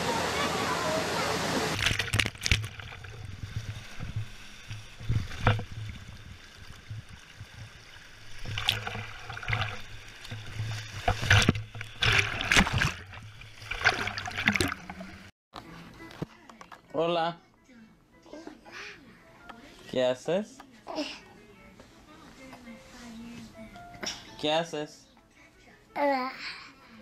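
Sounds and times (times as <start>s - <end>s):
pool waterfall rushing: 0.0s - 2.1s
water sliding and splashing: 0.0s - 15.3s.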